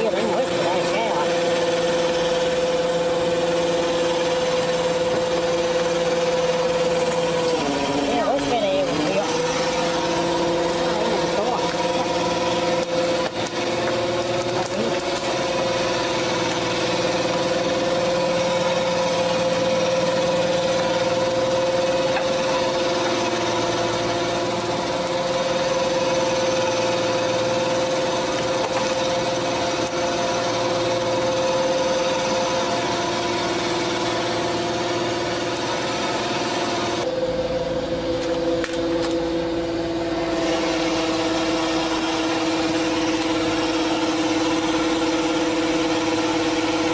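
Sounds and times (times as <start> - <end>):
boat engine droning: 0.0 - 46.9.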